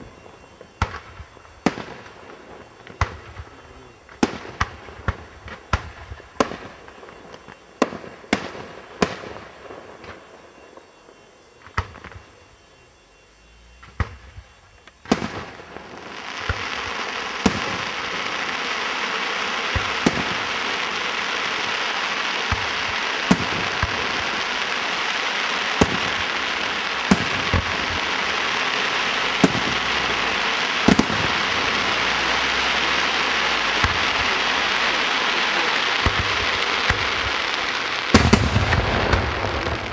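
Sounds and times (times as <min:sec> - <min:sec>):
fireworks crackling hiss: 0:00.0 - 0:39.9.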